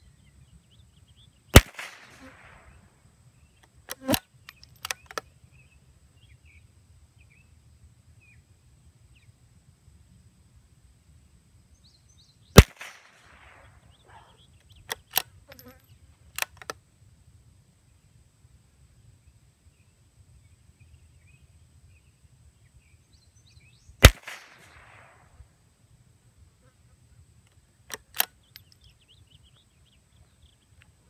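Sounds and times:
rifle shot: 1.5s - 2.8s, 12.6s - 13.8s, 24.0s - 25.3s
rifle bolt clicks: 3.9s - 5.2s, 14.8s - 15.7s, 16.4s - 16.8s, 27.9s - 28.8s.

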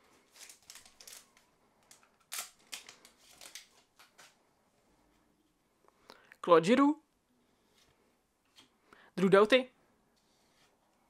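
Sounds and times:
cards rustling: 0.1s - 4.4s
wrapper crinkling and tearing: 0.2s - 4.3s.

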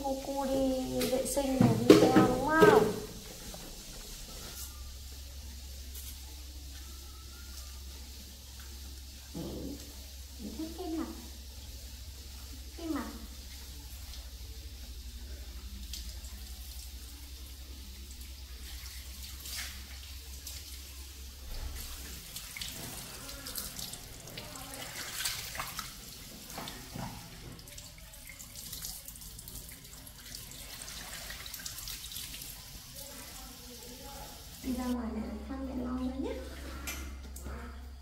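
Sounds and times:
water running from a tap: 0.0s - 37.6s
water splashing: 21.5s - 29.1s.

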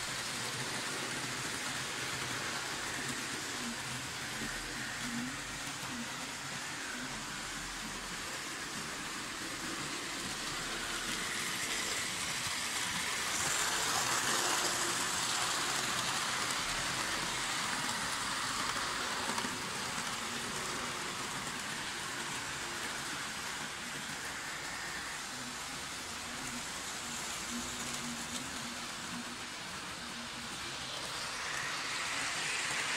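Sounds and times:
model railcar rolling on track: 0.0s - 32.9s.

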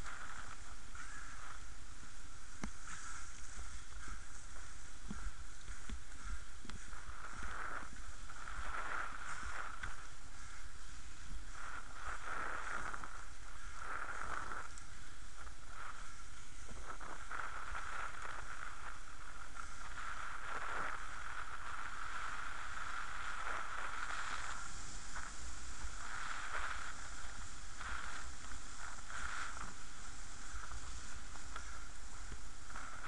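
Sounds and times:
wind rushing on microphone: 0.0s - 33.0s
inline skate wheels rolling: 16.7s - 33.0s.

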